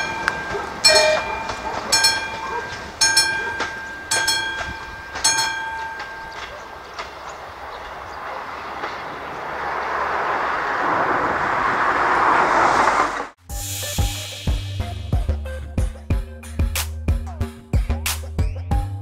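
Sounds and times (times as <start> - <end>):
level crossing bell ringing: 0.0 - 6.9
rushing noise: 0.0 - 14.8.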